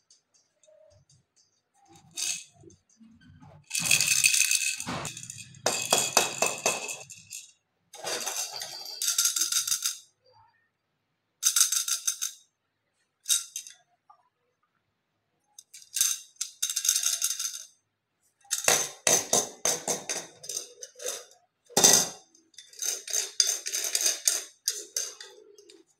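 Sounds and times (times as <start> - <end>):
plastic baby rattle shaking: 1.9 - 2.7, 3.7 - 10.0, 15.6 - 17.7, 22.6 - 25.8.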